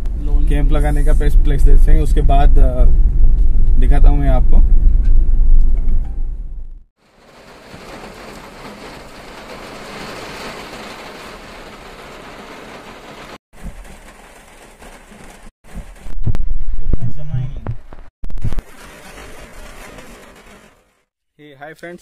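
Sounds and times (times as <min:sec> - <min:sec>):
loud low rumble: 0:00.0 - 0:06.8, 0:16.0 - 0:18.6
rain falling: 0:07.0 - 0:16.2, 0:18.5 - 0:21.0.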